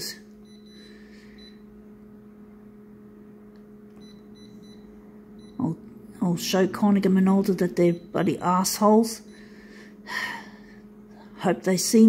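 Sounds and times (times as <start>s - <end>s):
copier humming: 0.0s - 12.0s
control panel beeps: 0.4s - 1.7s, 4.0s - 5.7s, 7.8s - 8.5s.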